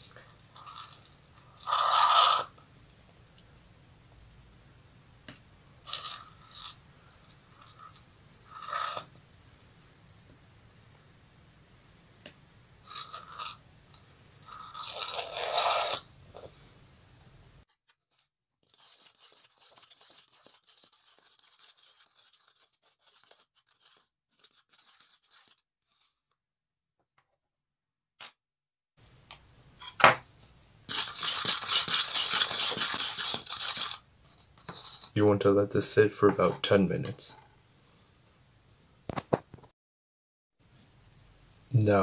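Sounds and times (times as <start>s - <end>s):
fast repeating scraping: 30.9s - 34.0s.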